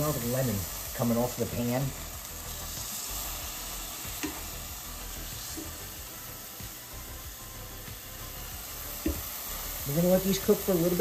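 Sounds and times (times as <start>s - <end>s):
lemon slices sizzling in oil: 0.0s - 11.0s
tongs tapping a pan: 4.1s - 4.5s, 9.0s - 9.3s.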